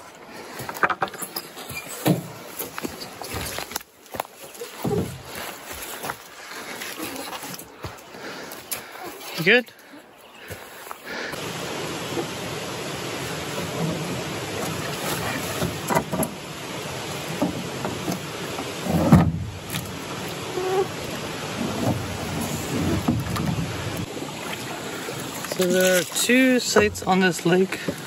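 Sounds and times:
water rushing: 4.4s - 9.9s, 11.1s - 28.0s
wading splashes: 11.4s - 28.0s
canoe hull thudding on water: 13.4s - 25.3s.

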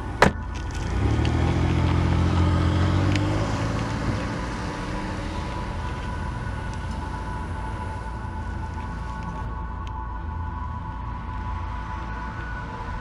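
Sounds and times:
car engine driving off: 0.0s - 9.5s.

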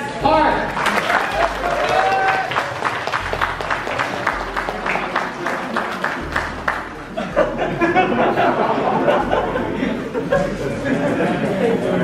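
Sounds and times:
crowd voices and chatter: 0.0s - 12.0s
audience applauding: 0.7s - 7.2s.

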